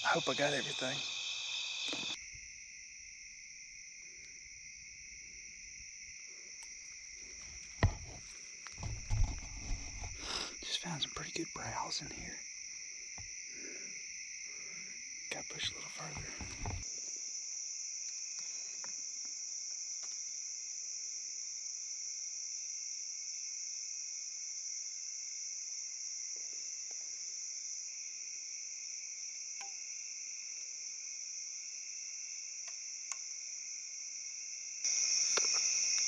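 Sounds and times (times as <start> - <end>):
crickets chirping: 0.0 - 36.0
microphone handling rustle: 7.4 - 10.2, 16.0 - 16.8.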